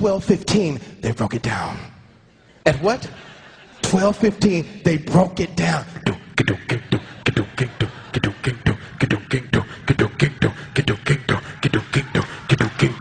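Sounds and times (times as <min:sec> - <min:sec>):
man beatboxing: 0:03.9 - 0:13.0.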